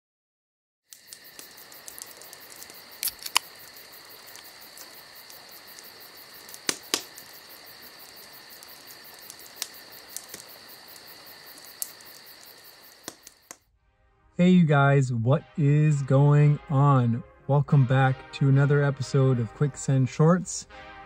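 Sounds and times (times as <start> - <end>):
sharp clicks: 0.9 - 3.7, 4.3 - 7.4, 9.2 - 10.6, 11.5 - 13.6
crickets chirring: 0.9 - 13.6.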